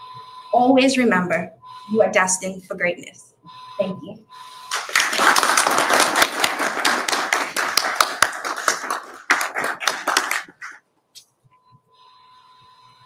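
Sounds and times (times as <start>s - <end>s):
group applauding: 4.7s - 10.8s.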